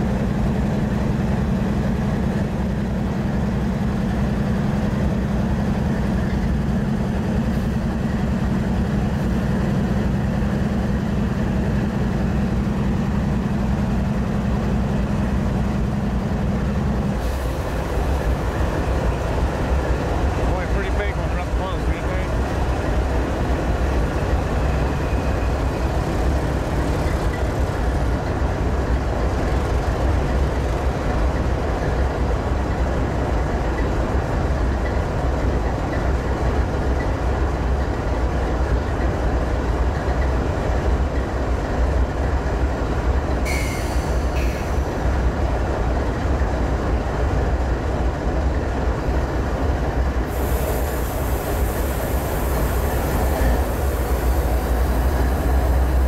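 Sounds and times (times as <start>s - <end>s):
locomotive engine rumble: 0.0s - 56.0s
hiss: 17.2s - 18.5s, 43.5s - 44.9s, 50.3s - 56.0s
high squeal: 43.5s - 44.8s.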